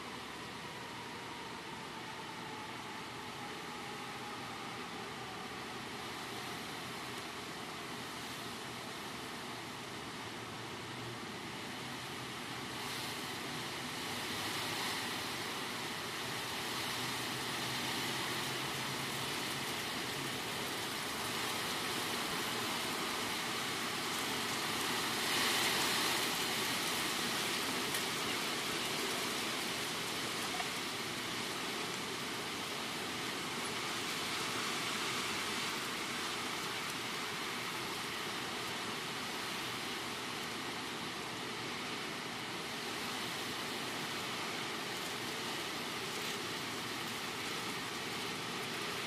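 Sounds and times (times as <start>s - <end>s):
strong wind through tree leaves: 0.0s - 49.0s.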